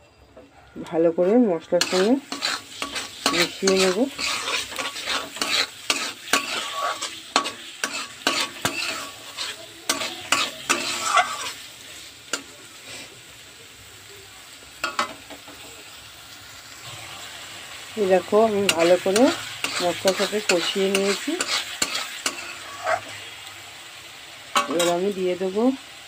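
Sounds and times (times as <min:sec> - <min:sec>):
food sizzling in oil: 0:00.7 - 0:26.0
metal spatula scraping a pan: 0:01.2 - 0:13.1, 0:18.2 - 0:23.3, 0:24.5 - 0:25.3.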